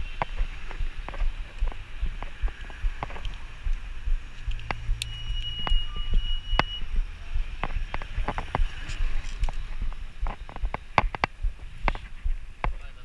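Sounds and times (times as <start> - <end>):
low traffic rumble: 0.0 - 13.0
bicycle clicking and rattling: 7.6 - 12.8.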